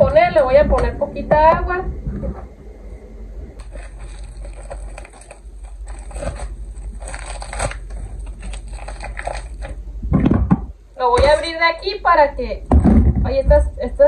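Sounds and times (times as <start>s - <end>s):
plastic wrapping crinkling: 3.6s - 9.8s.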